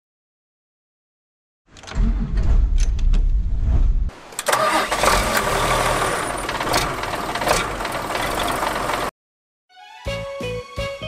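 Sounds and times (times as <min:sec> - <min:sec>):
diesel engine cranking and starting: 0:04.4 - 0:09.1
diesel engine running loudly: 0:04.5 - 0:09.1.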